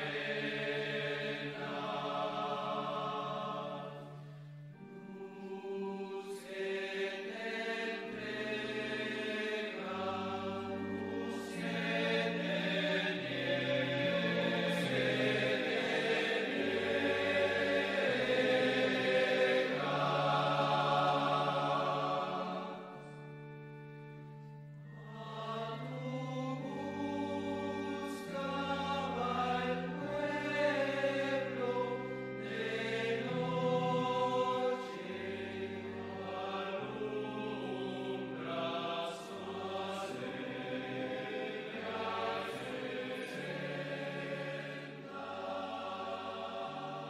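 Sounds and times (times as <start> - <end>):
voices singing slow hymn: 0.0 - 47.0.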